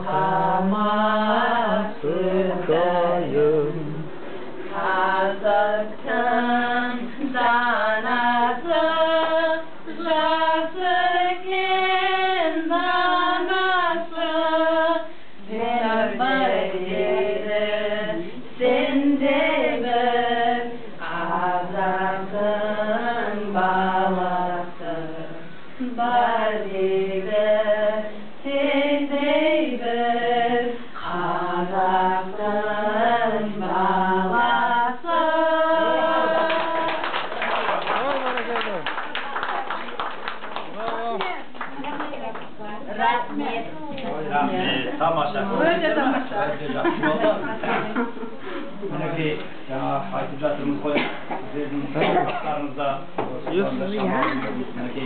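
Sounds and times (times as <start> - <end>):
women singing unaccompanied: 0.0 - 37.4.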